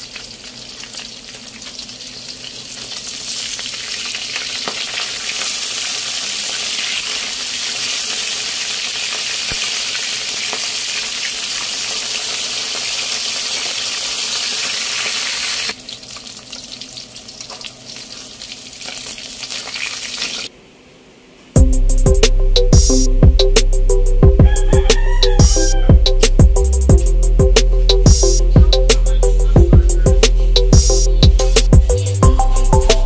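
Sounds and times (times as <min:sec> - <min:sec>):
fish sizzling in hot oil: 0:00.0 - 0:20.5.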